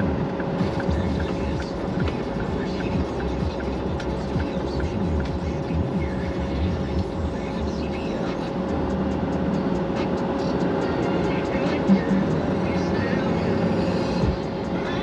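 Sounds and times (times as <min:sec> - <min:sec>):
faint radio talking: 0:00.0 - 0:08.7
engine whine: 0:00.0 - 0:15.0
truck engine and road rumble: 0:00.0 - 0:15.0.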